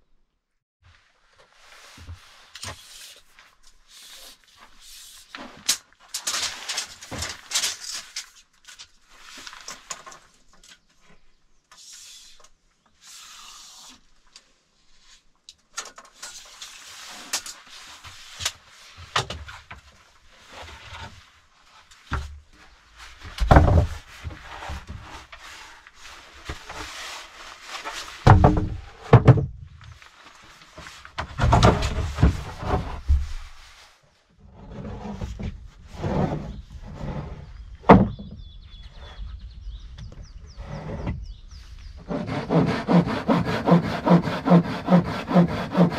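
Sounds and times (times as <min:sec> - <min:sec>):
wooden planks knocking: 0:23.2 - 0:24.0, 0:28.2 - 0:29.7, 0:31.2 - 0:33.4
heavy wooden thumps: 0:23.3 - 0:24.0, 0:28.2 - 0:29.7, 0:31.2 - 0:33.4, 0:37.8 - 0:38.4.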